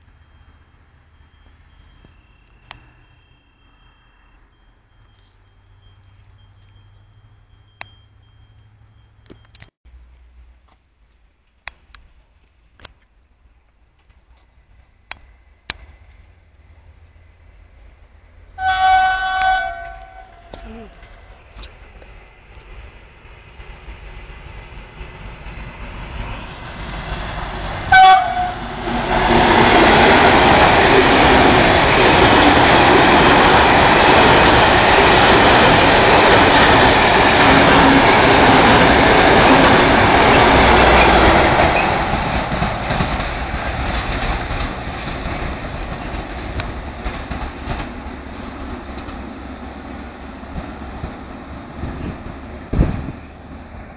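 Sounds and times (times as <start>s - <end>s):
freight train passing at speed: 0.0s - 10.3s, 14.0s - 53.9s
train horn blast: 18.6s - 20.7s, 27.9s - 28.8s.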